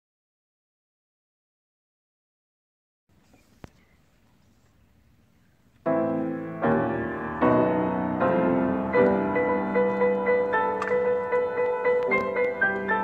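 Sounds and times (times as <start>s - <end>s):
piano chords: 5.8s - 13.0s.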